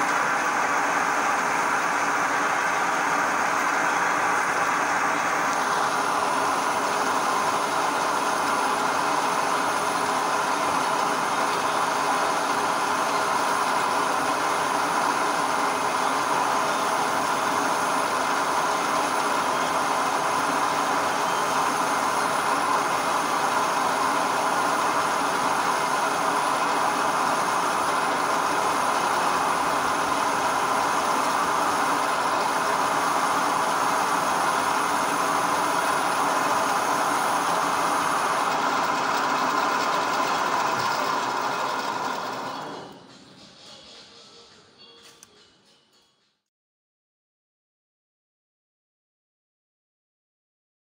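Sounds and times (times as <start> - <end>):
lathe motor whining: 0.0 - 43.1
tool cutting spinning metal: 0.0 - 44.2.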